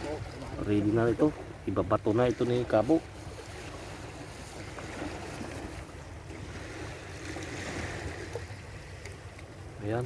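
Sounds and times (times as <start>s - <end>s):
waves washing against rocky shore: 2.3s - 10.0s.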